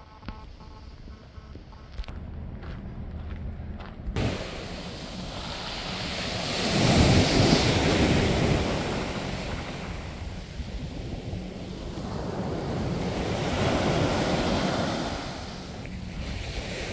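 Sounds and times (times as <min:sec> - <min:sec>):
wind buffeting microphone: 0:02.2 - 0:16.9
sea surf washing onto beach: 0:04.2 - 0:16.9.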